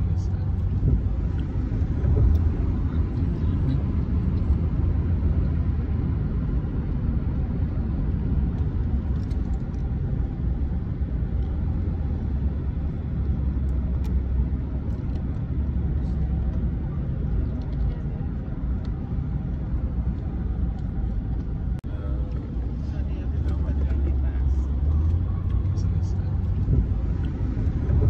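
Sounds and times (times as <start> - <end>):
car road rumble: 0.0 - 28.0.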